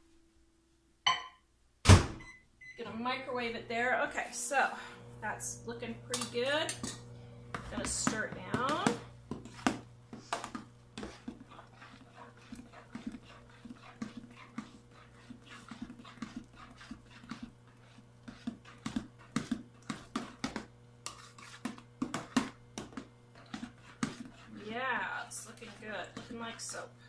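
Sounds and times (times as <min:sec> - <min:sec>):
thick paste being stirred: 0:06.2 - 0:26.9.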